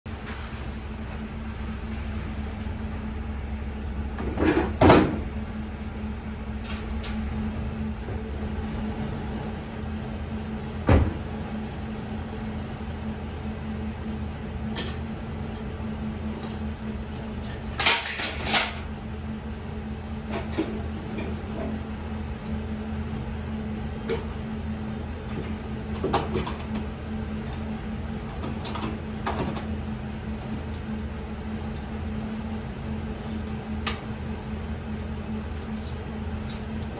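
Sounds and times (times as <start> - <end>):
steady low hum: 0.1 - 36.9
metal clanks and clicks: 17.4 - 18.9.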